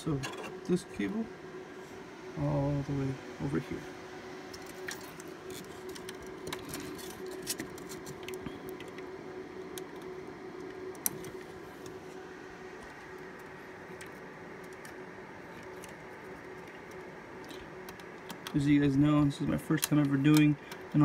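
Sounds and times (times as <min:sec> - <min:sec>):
steady hum: 0:00.0 - 0:21.0
cable and connector rattling: 0:04.6 - 0:09.0.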